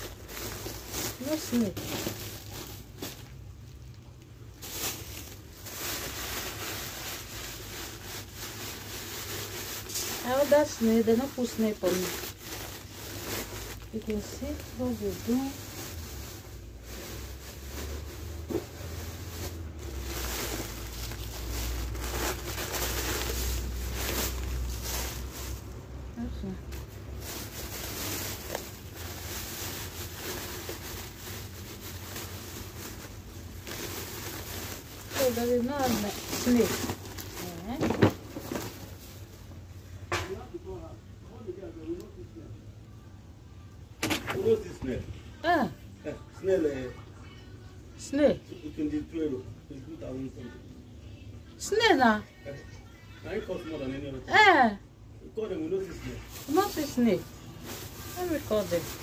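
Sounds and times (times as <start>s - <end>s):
plastic bags rustling: 0.0s - 40.0s, 55.8s - 59.0s.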